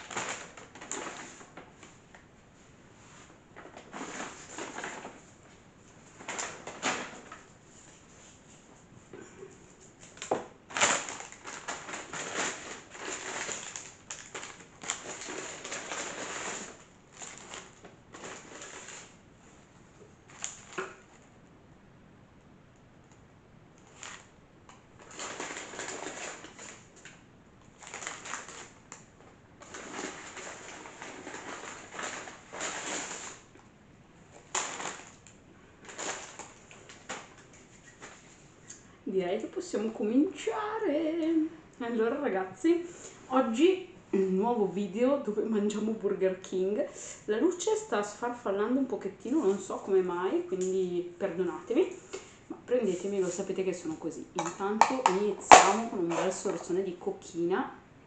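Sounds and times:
paper bag rustling: 0.0s - 1.8s, 3.0s - 5.4s, 9.9s - 21.2s, 23.8s - 24.4s, 25.0s - 33.5s, 34.3s - 38.6s
sharp wrapper crinkles: 10.0s - 19.2s, 20.2s - 21.2s, 25.0s - 33.5s, 34.3s - 38.8s.

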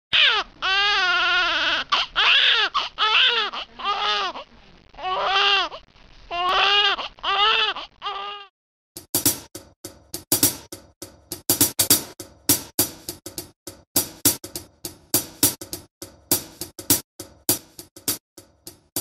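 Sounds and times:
baby crying: 0.1s - 8.5s.

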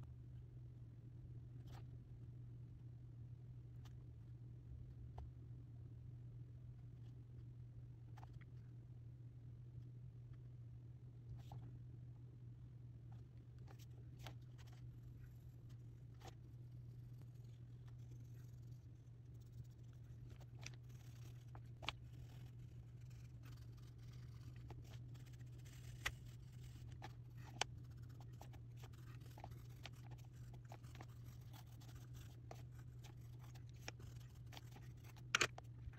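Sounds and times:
steady low hum: 0.0s - 35.9s
pencils scratching on paper: 14.3s - 35.6s.

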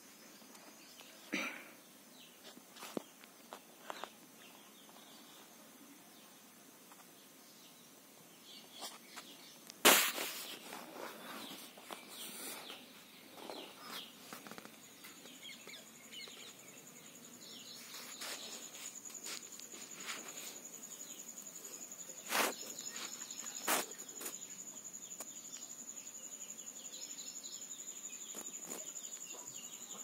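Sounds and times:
small birds chirping: 0.0s - 30.0s
sharp knock: 9.8s - 10.2s.

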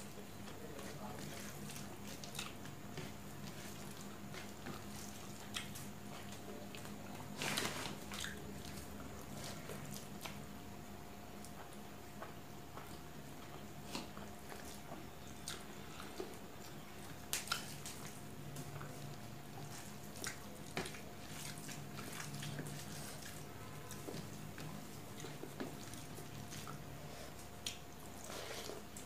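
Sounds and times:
wet squishing of rice: 0.0s - 29.0s
mouth smacks while chewing: 11.4s - 18.2s.

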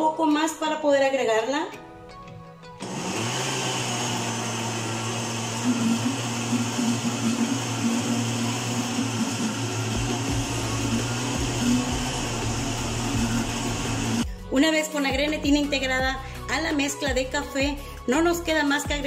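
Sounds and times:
blender running: 2.8s - 14.3s.

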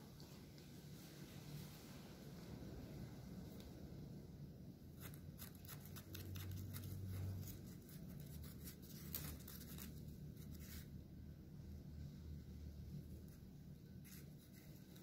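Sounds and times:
low steady hum: 0.0s - 15.0s
wooden stick scratching: 5.0s - 10.9s, 13.2s - 15.0s.

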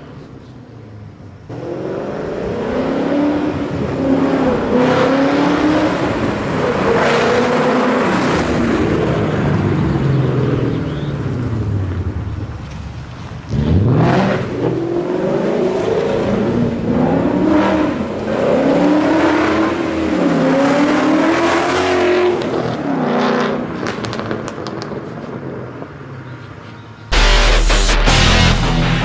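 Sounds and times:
car engine revving: 1.5s - 12.7s, 13.5s - 24.8s, 27.1s - 29.0s
music: 27.1s - 29.0s.

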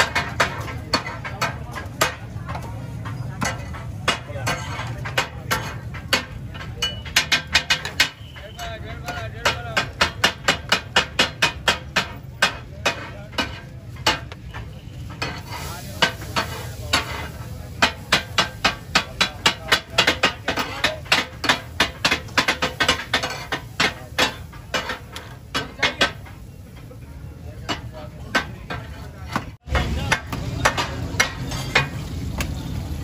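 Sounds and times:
metal spatulas striking griddle: 0.0s - 32.6s
food sizzling: 15.2s - 27.9s, 29.6s - 33.0s.

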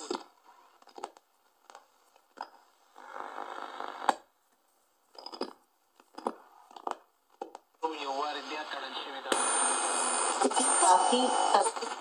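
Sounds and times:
radio static: 7.8s - 12.0s
radio station snatches: 7.8s - 12.0s.

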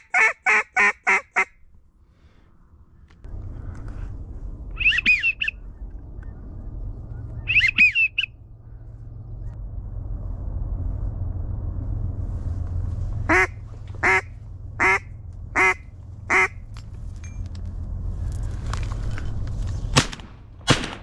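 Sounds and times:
duck call quacks: 0.0s - 1.5s, 13.3s - 15.0s, 15.6s - 16.5s
low steady rumble: 0.0s - 21.0s
high whistled chirps: 4.7s - 6.4s, 7.3s - 8.4s.

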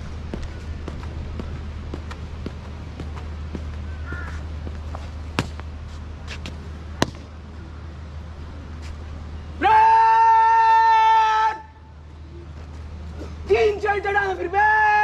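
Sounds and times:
boot stamps on hard court: 0.3s - 5.7s
shouted drill command: 9.6s - 11.7s.

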